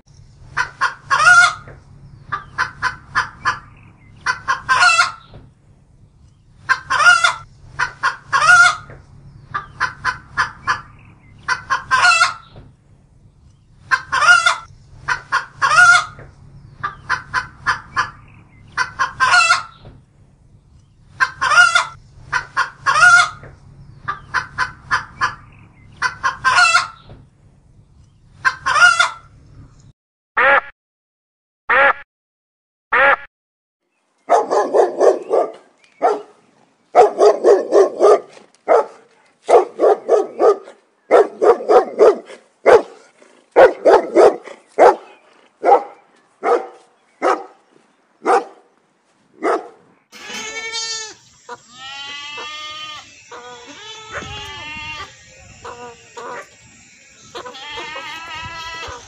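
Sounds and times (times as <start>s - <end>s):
rooster clucking and calling: 0.5s - 5.3s, 6.6s - 12.6s, 13.8s - 19.8s, 21.2s - 27.1s, 28.4s - 29.3s, 50.1s - 59.0s
faint low hum: 50.2s - 59.0s.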